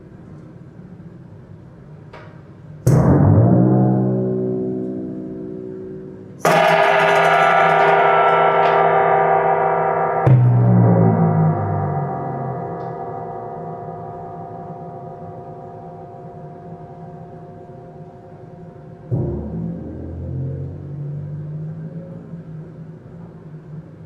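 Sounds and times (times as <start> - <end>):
struck metal ringing: 2.9 - 22.0.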